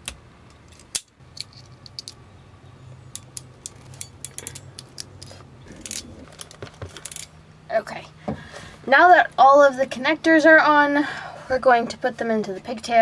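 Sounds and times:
metallic clicks of wiring tools: 3.1 - 7.4.

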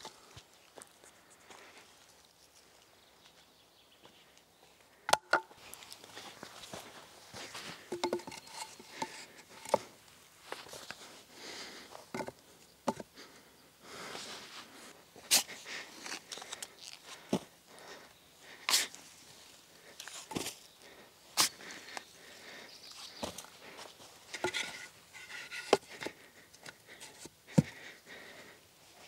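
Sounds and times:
wooden knocks and clacks: 7.9 - 9.8.

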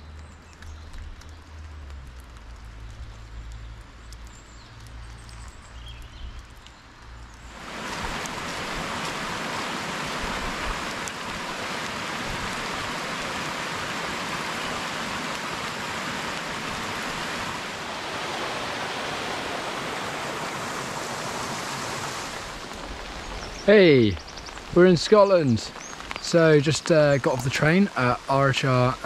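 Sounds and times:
flowing water rushing: 7.4 - 29.0.

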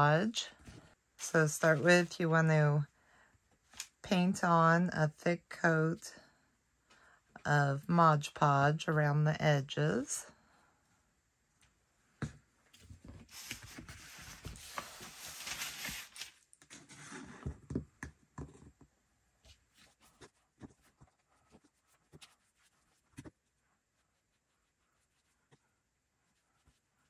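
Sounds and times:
brush scratching on paper: 19.8 - 23.2.

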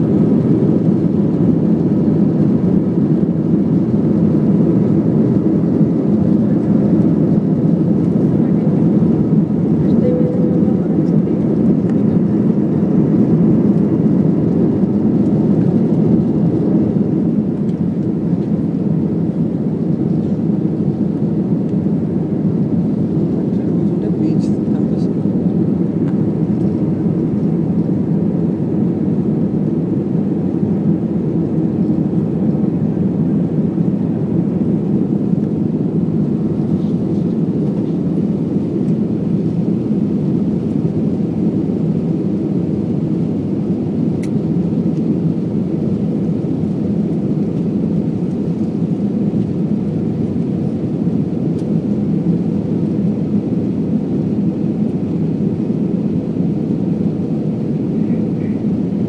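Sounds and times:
jet engine cabin drone: 0.0 - 59.0.

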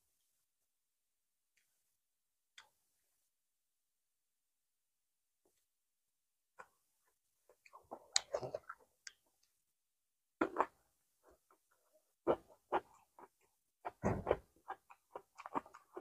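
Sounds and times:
chewing: 7.5 - 9.2, 12.3 - 16.0.

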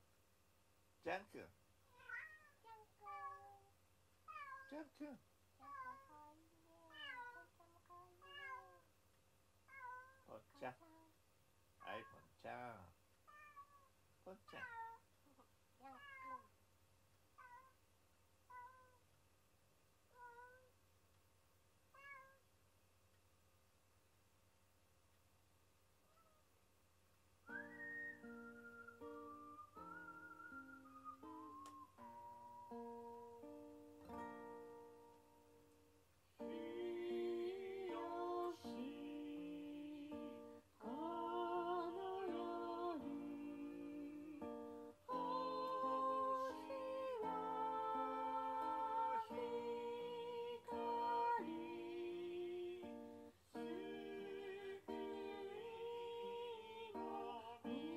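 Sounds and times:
cat meowing: 1.9 - 3.7, 4.3 - 4.8, 5.6 - 8.8, 9.7 - 11.1, 11.8 - 12.3, 13.3 - 13.9, 14.5 - 16.5, 17.4 - 17.8, 18.5 - 19.0, 20.1 - 20.7, 21.9 - 22.4, 26.1 - 26.5
acoustic guitar chords: 27.6 - 35.7, 36.4 - 57.9
person singing long wavering notes: 36.4 - 52.9, 53.6 - 57.9.

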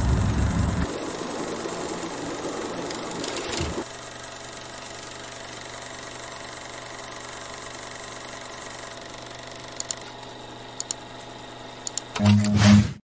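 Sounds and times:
mechanical hum: 0.0 - 13.0
computer mouse clicks: 9.7 - 10.2, 10.8 - 11.0, 11.8 - 12.6.

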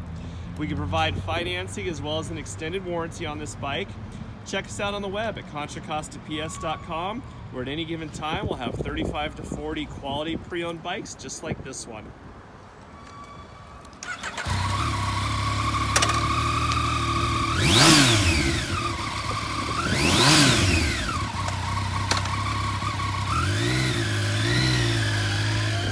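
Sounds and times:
motorcycle engine starting and idling: 13.9 - 25.9
motorcycle engine revving: 14.0 - 25.9.

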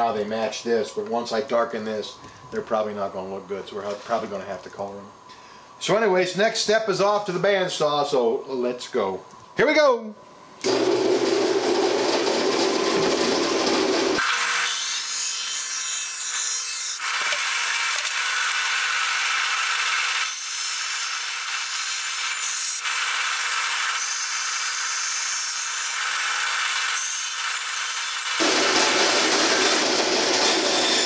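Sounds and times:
bandsaw cutting wood: 10.6 - 31.0.

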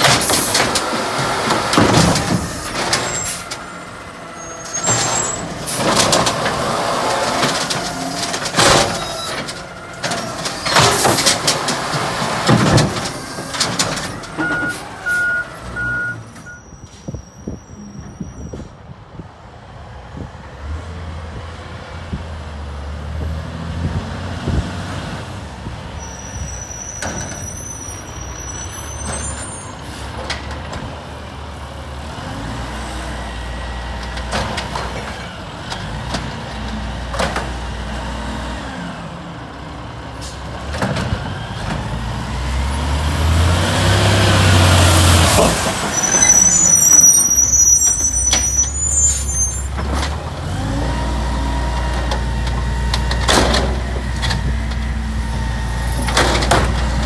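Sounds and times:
garbage truck diesel engine: 0.0 - 57.0
high squeals: 2.4 - 5.6, 26.0 - 29.9, 45.8 - 49.8.

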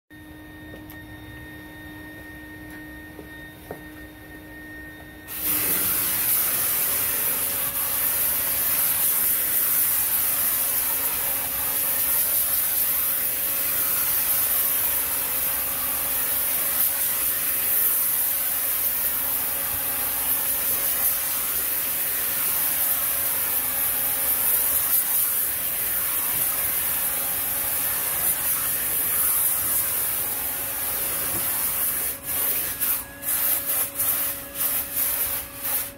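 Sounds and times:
steady low hum: 0.1 - 9.3
paint spray gun hissing: 5.3 - 35.9.

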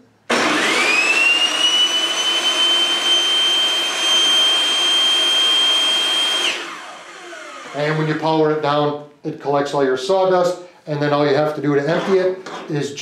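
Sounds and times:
table saw motor whining: 0.3 - 8.2.

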